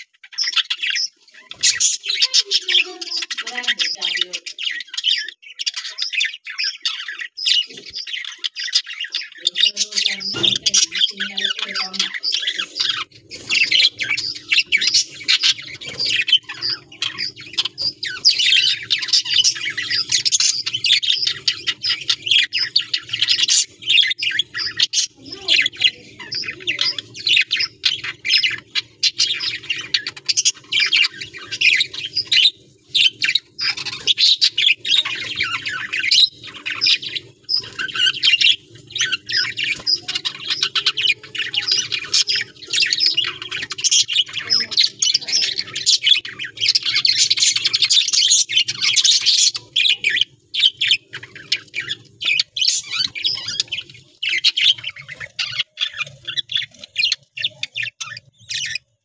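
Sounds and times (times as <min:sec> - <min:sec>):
budgerigars chattering: 0:00.0 - 0:59.0.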